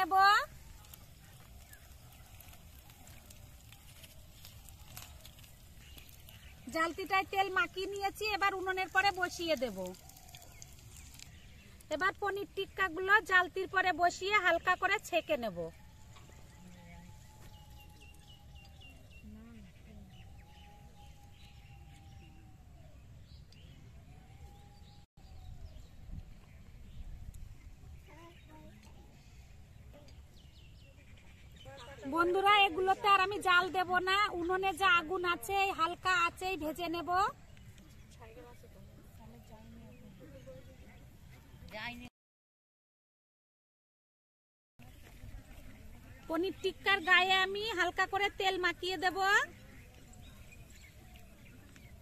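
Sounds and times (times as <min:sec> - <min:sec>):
birds chirping: 0:00.0 - 0:42.1, 0:44.8 - 0:52.0.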